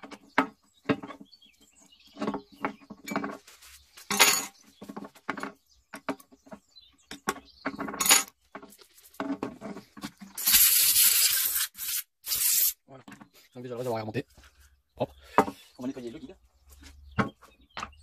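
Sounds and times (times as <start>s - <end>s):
metal tool clattering: 4.1s - 4.6s.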